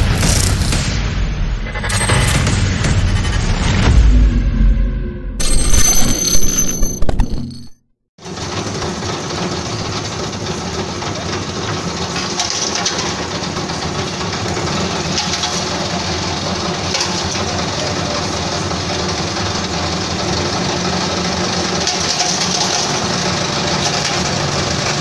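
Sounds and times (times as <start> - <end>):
machine motor running: 8.2 - 25.0.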